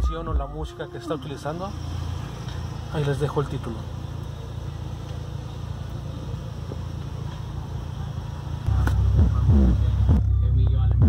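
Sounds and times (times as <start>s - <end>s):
hip-hop bass through subwoofer: 8.7s - 11.0s.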